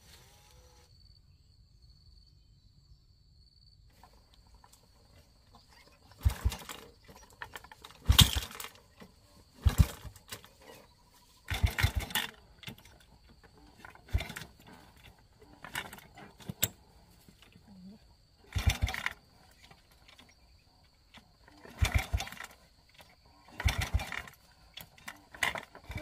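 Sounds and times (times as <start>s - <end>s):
motorbike engine revving: 5.6s - 26.0s.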